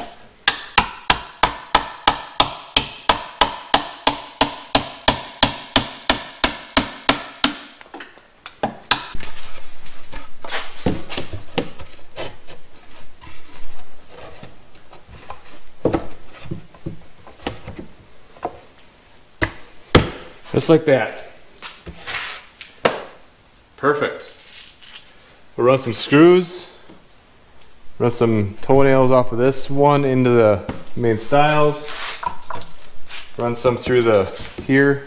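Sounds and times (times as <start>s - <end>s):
hammer striking wood: 0.0s - 7.8s, 8.6s - 9.2s, 19.4s - 20.3s
wood scraping and rubbing: 9.4s - 18.7s, 31.0s - 34.8s.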